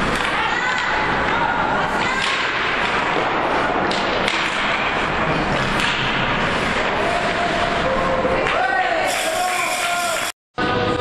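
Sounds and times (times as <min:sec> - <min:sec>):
hockey stick striking puck: 0:00.0 - 0:07.8
ice rink noise: 0:00.0 - 0:11.0
puck and sticks knocking: 0:02.0 - 0:07.4.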